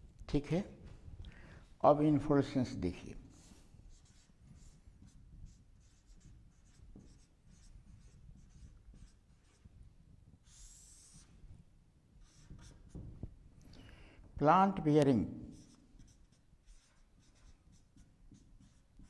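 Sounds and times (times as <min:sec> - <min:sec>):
marker pen on a whiteboard: 0:03.0 - 0:13.4, 0:14.4 - 0:19.0.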